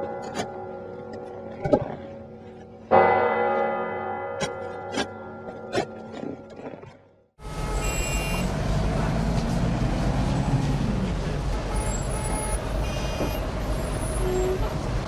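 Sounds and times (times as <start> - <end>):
heavy vehicle engine running: 7.4 - 15.0
steady traffic rumble: 7.4 - 15.0.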